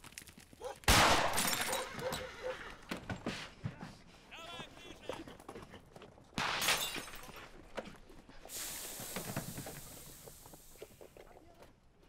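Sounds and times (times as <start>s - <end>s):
shattering crash: 0.9s - 2.0s, 6.4s - 7.4s
long hiss: 8.5s - 11.1s.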